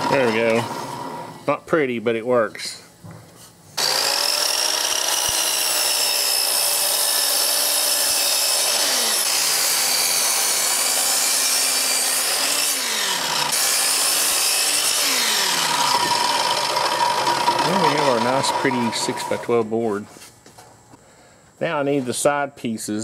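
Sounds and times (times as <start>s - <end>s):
saw blade rasping in wood: 3.8s - 19.6s
miter saw motor whine: 3.8s - 19.7s.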